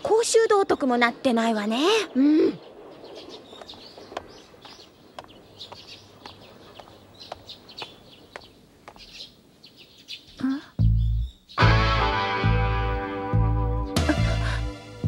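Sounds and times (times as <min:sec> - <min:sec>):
small birds chirping: 0:00.0 - 0:11.8
footsteps on pavement: 0:03.5 - 0:09.2.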